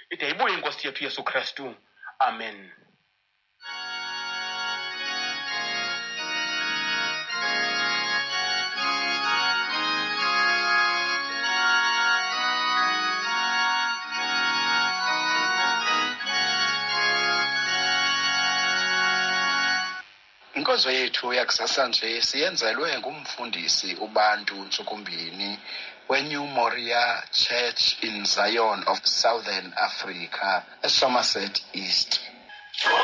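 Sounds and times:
organ chords: 3.6s - 21.0s, 32.4s - 33.0s.

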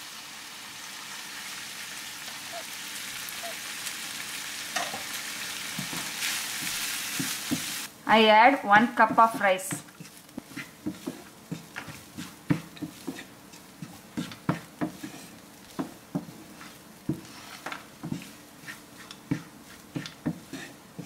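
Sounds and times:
wooden spatula scraping frying pan: 4.8s - 7.9s, 8.6s - 21.0s.

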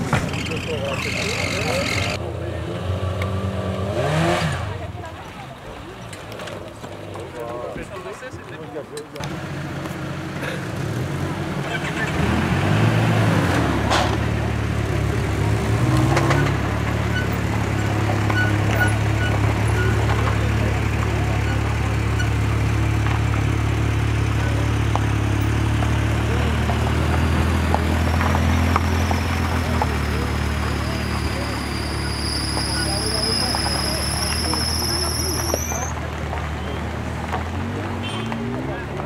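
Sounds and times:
car engine running under load: 8.8s - 39.0s.

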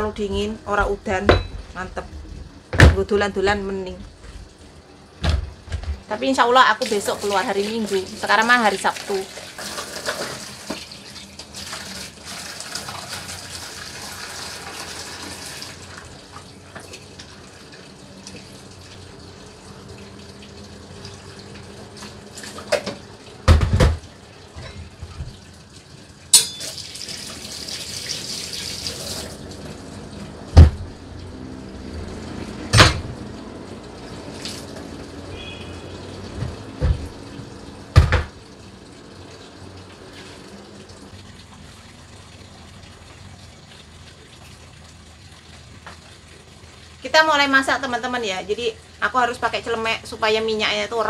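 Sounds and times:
kitchenware knocks: 0.3s - 1.8s, 23.5s - 24.0s, 38.0s - 38.3s
tap running into a sink: 5.2s - 6.0s, 9.4s - 11.9s, 21.5s - 25.5s, 30.4s - 31.0s, 36.2s - 38.5s.

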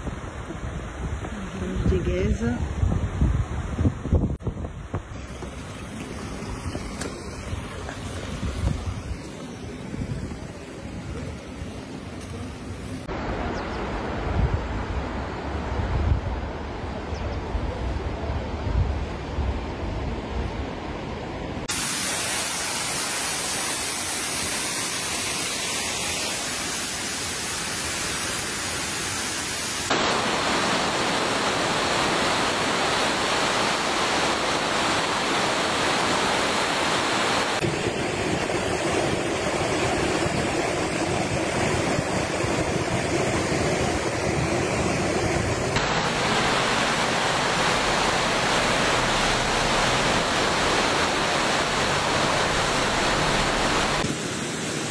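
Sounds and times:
river rushing: 12.0s - 17.1s, 20.0s - 54.9s.

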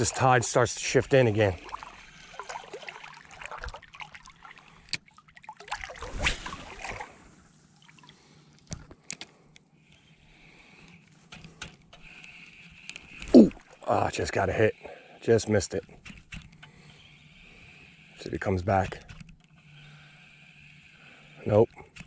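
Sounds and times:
shallow water sloshing and trickling: 0.0s - 8.6s, 12.1s - 14.3s.

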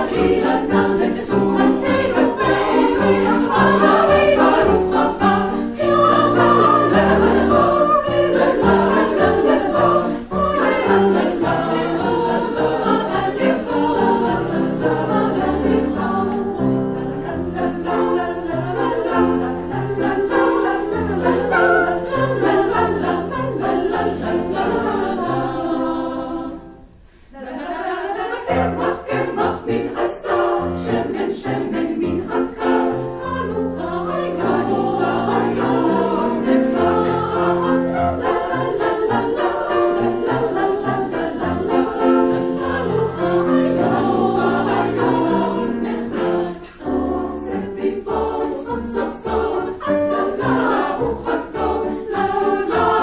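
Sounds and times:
women's choir singing: 0.0s - 53.0s.

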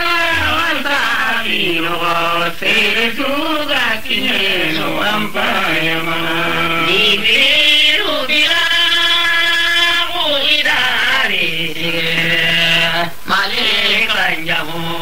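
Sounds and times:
man chanting: 4.0s - 15.0s.

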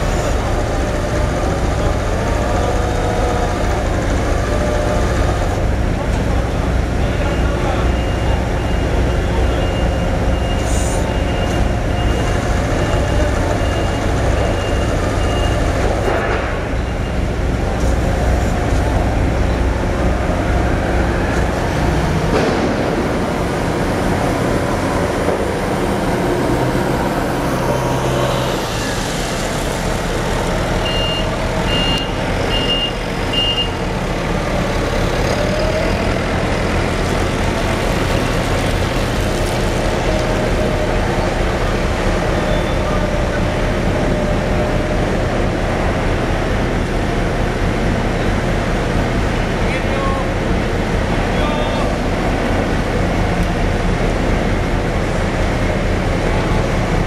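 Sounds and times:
diesel machinery drone: 0.0s - 57.0s
high warning beeps: 30.8s - 33.8s.

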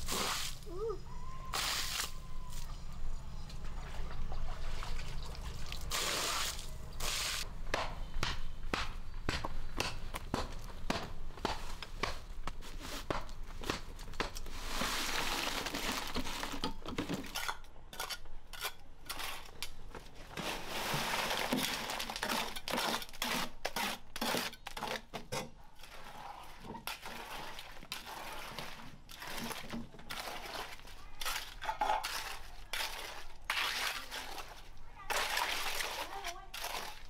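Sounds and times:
wet concrete tipped from wheelbarrow: 20.4s - 22.6s.

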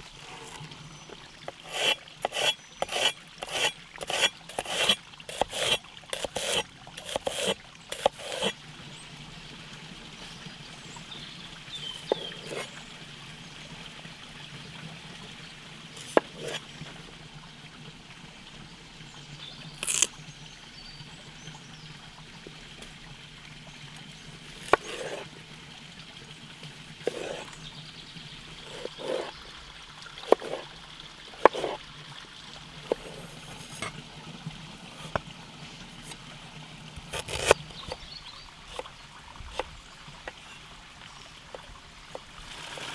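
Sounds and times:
stream trickling: 0.0s - 42.9s
knife chopping on wooden board: 30.3s - 30.6s, 31.4s - 31.8s, 37.1s - 37.5s.

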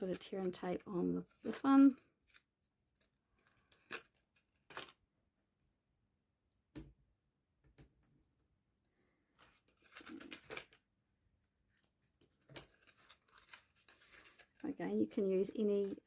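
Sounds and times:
papery rustle: 12.3s - 16.0s.

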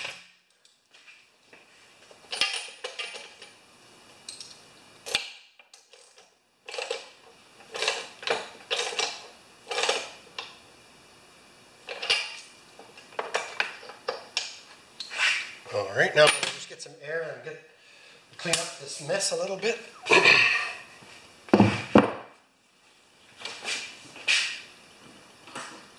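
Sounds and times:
metal tools clinking and scraping: 2.1s - 3.6s, 16.1s - 16.7s, 20.1s - 20.9s.

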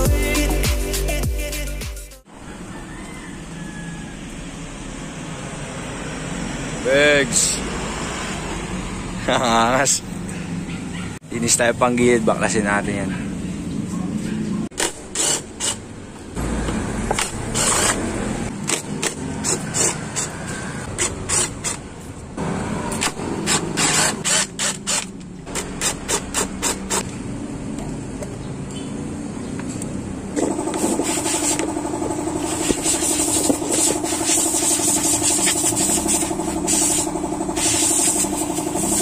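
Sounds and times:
steady machine hum: 30.4s - 39.0s.

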